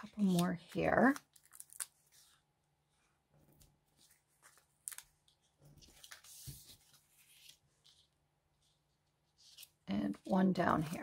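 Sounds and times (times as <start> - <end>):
paper rustling and clicking: 3.5 - 8.1.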